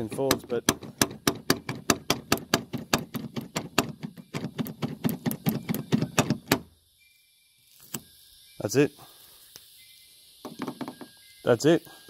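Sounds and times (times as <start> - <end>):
car door handle clicking: 0.0 - 6.6.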